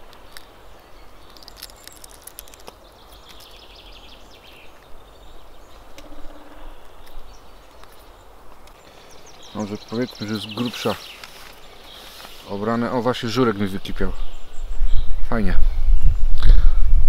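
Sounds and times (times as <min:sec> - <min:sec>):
eggshell crackling: 0:00.1 - 0:04.5.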